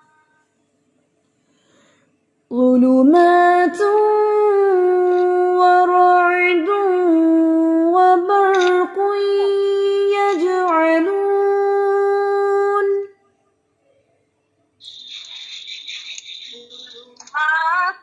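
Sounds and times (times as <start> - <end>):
woman reciting melodically: 2.5 - 13.2, 16.4 - 18.0.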